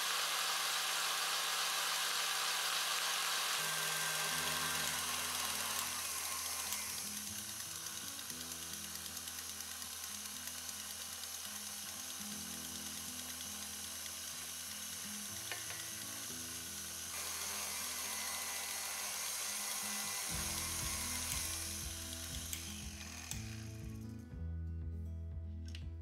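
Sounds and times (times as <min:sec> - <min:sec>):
stand mixer whirring: 0:00.0 - 0:23.5
background music: 0:17.8 - 0:26.0.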